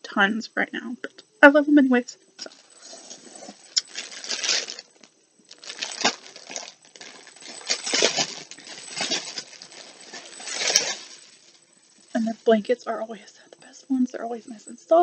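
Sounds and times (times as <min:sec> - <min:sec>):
packaging rustling and crinkling: 0:02.4 - 0:12.2.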